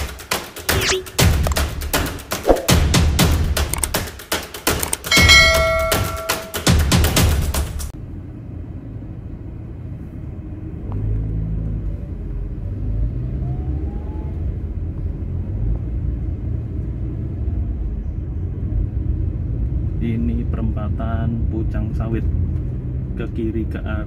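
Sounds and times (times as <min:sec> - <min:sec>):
car engine and road rumble: 0:07.9 - 0:24.0.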